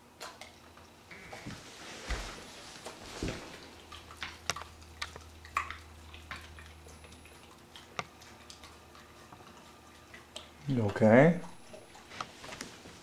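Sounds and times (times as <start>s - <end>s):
faint low hum: 0.0s - 13.0s
soft rustle: 1.2s - 4.1s.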